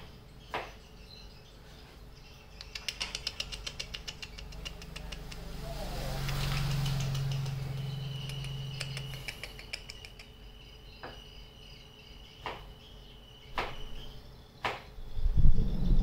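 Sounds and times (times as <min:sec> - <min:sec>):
high insect-like chirring: 0:02.5 - 0:15.8
sharp clicks: 0:02.6 - 0:05.5, 0:06.2 - 0:10.4
loud low rumble: 0:04.4 - 0:09.3.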